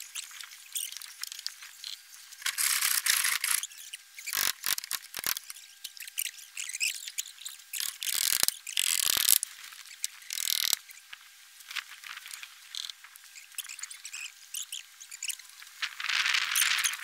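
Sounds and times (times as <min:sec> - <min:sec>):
scattered clicks: 0:07.8 - 0:09.4.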